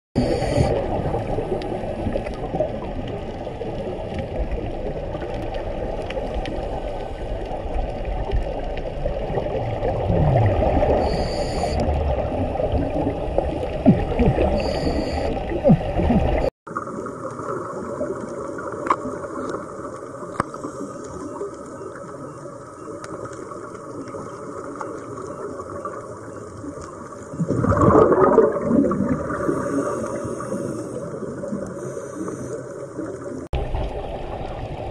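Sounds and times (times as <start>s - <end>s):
diver's exhaled breath bubbling: 0.2s - 2.9s, 9.2s - 16.5s, 27.4s - 32.8s
underwater water rush: 0.2s - 34.9s.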